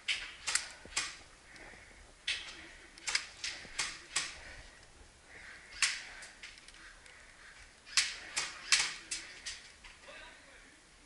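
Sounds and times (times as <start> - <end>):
airsoft gun shots echoing: 7.9 - 9.2.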